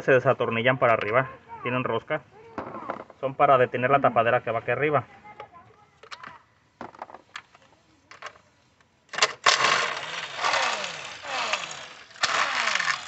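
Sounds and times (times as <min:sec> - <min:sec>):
small motorised tool whirring: 0:09.2 - 0:13.0.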